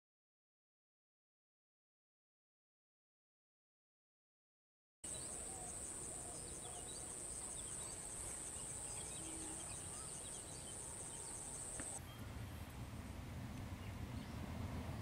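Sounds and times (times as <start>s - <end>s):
high-pitched insect trill: 5.1s - 12.0s
faint bird chirps: 5.1s - 12.4s.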